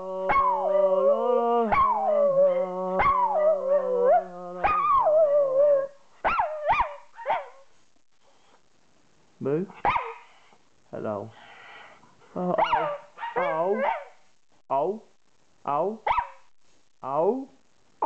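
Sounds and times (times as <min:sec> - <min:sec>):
dog howling: 0:00.0 - 0:07.5
dog yelping: 0:01.7 - 0:07.6, 0:09.8 - 0:10.2, 0:12.6 - 0:14.1.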